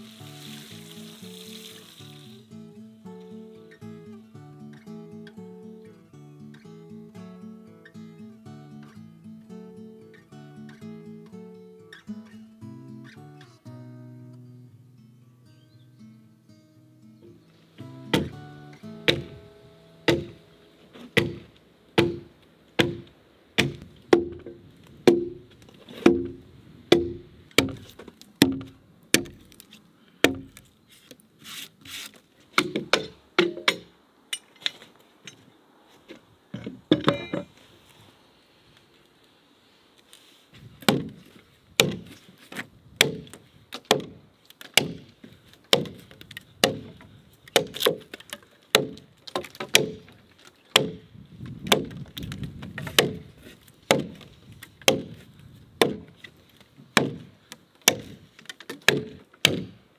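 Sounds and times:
axe chopping log: 0:18.1 - 0:18.4, 0:19.1 - 0:19.4, 0:20.1 - 0:20.4, 0:21.1 - 0:29.6, 0:30.2 - 0:30.6, 0:32.6 - 0:33.9, 0:40.8 - 0:42.2, 0:43.0 - 0:51.0, 0:51.7 - 0:55.2, 0:55.8 - 0:56.2, 0:56.9 - 0:59.8
scattered wood knocks: 0:18.1 - 0:18.4, 0:19.1 - 0:19.4, 0:20.1 - 0:20.4.

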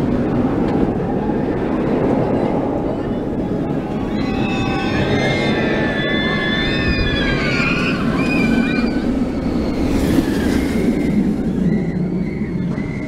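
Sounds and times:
roller coaster roaring on track: 0:00.0 - 0:13.0
riders screaming: 0:04.0 - 0:11.9.

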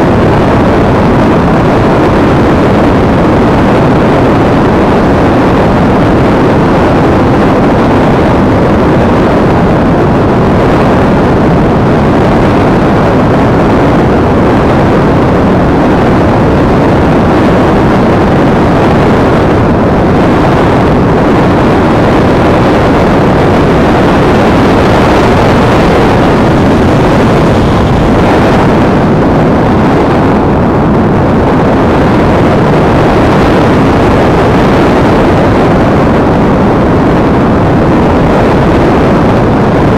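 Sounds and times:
wind rushing over microphone: 0:00.0 - 0:39.9.

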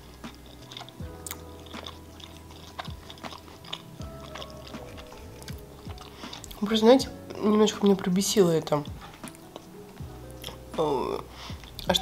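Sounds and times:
chewing soft food: 0:00.0 - 0:12.0.

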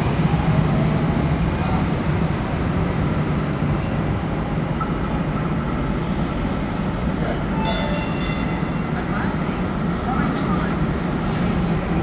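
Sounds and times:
train rumble: 0:00.0 - 0:12.0
brief high tone: 0:07.6 - 0:09.0.

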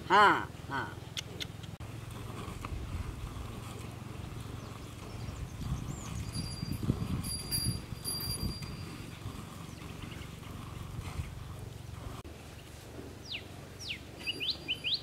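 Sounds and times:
bird calling: 0:13.2 - 0:15.0.

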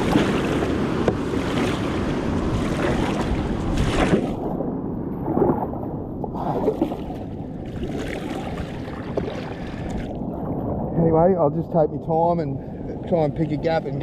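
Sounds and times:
kayak paddle splashing: 0:00.0 - 0:04.6, 0:05.2 - 0:10.7
water washing against hull: 0:00.0 - 0:11.2.

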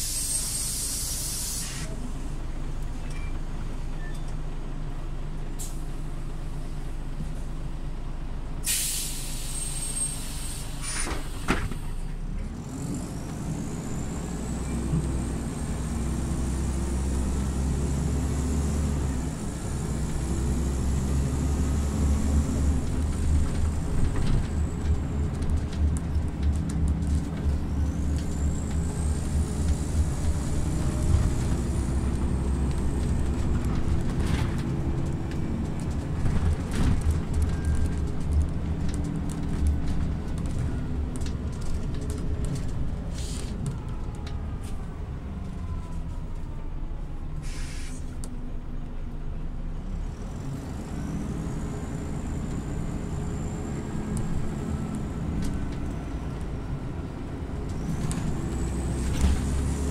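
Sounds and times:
compressed air hiss: 0:00.0 - 0:01.9, 0:08.7 - 0:11.5, 0:47.4 - 0:48.1
bus engine and whine: 0:00.0 - 0:59.9.

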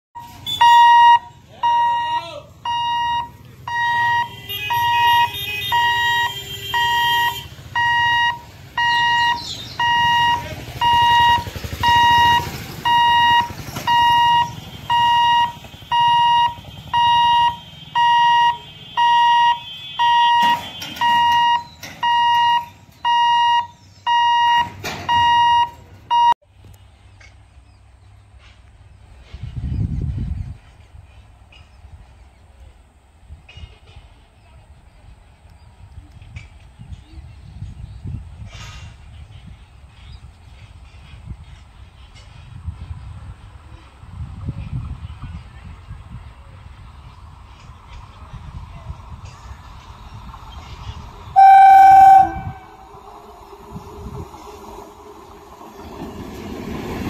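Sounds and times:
level crossing alarm beeping: 0:00.2 - 0:26.4, 0:51.4 - 0:52.6.

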